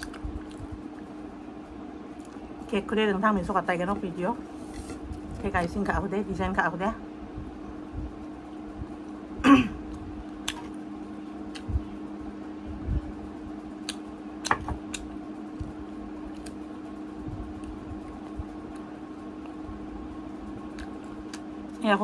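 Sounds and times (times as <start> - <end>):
chewing mouth noises: 0.0 - 1.2
steady low hum: 0.0 - 22.0
person clearing throat: 9.4 - 9.8.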